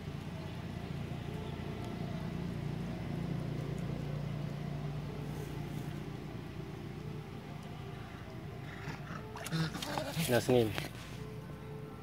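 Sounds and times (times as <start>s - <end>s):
low motor hum: 0.0s - 12.0s.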